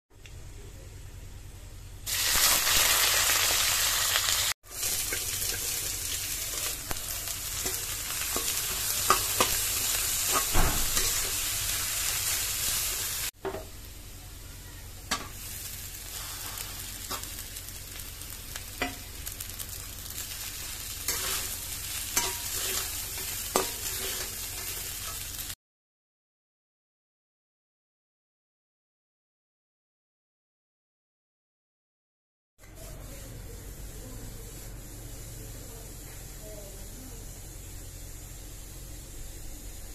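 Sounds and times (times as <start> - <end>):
food sizzling in hot oil: 2.1 - 13.4, 15.1 - 25.6
metal spatula scraping wok: 4.7 - 13.6, 20.1 - 25.5.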